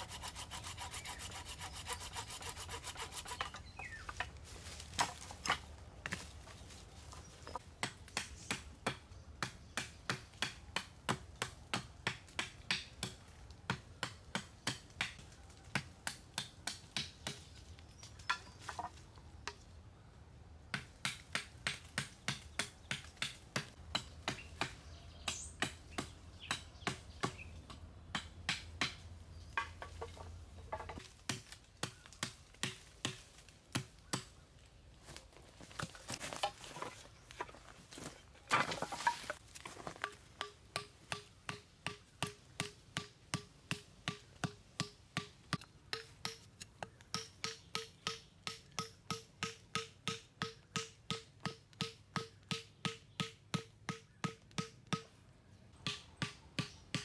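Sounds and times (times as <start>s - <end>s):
hand tool rasping wood: 0.0s - 3.7s.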